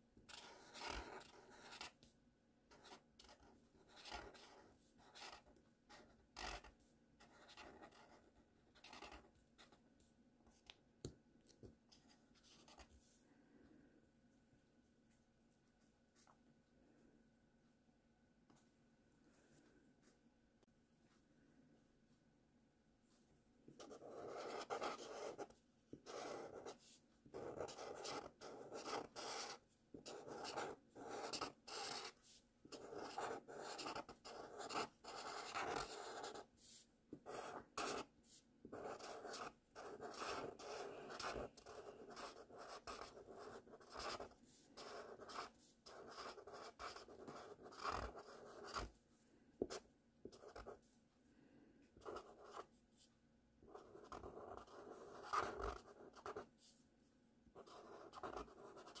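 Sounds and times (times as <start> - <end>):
marker scratching on paper: 0.3 - 2.0, 2.7 - 9.8, 23.8 - 38.1, 38.7 - 48.9, 49.6 - 50.8, 52.0 - 52.7, 53.7 - 56.5, 57.6 - 59.0.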